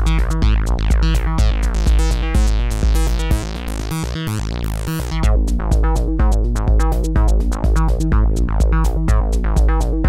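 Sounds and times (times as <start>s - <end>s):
synthesizer bassline with filter sweeps: 0.0s - 10.0s.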